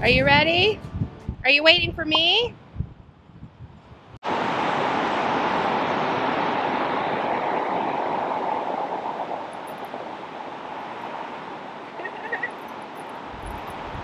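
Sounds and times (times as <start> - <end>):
waterfall rushing: 4.2 - 13.3.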